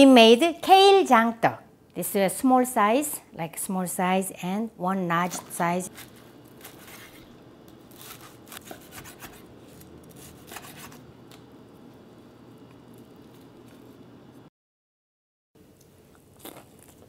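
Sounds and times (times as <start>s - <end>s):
knife crunching through pancake: 5.9s - 11.1s.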